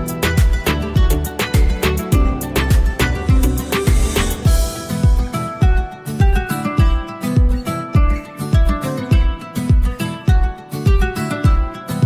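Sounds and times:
deep drum hits: 0.0 - 5.9.

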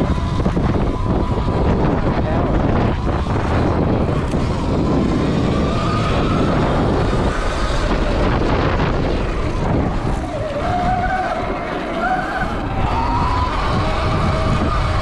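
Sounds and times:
electric motor whine: 0.0 - 15.0
wind noise on microphone: 0.0 - 15.0.

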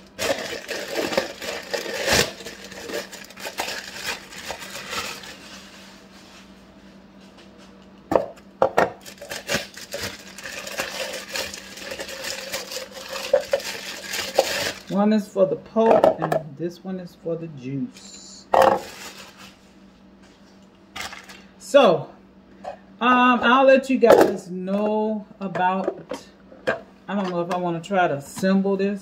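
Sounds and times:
plastic bags crinkling: 0.0 - 5.7, 9.0 - 15.0, 18.6 - 19.6, 21.0 - 21.4.

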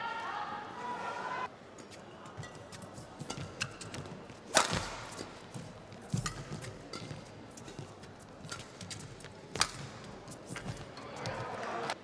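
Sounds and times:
racket striking shuttlecock: 2.4 - 10.9.

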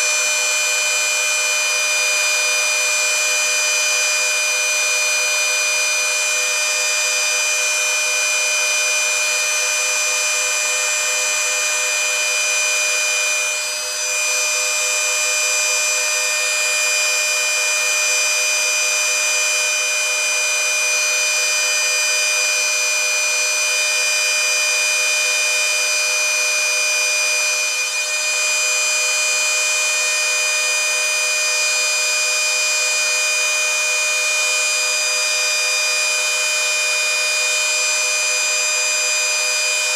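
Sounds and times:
router motors whining: 0.0 - 0.3, 24.2 - 39.8.

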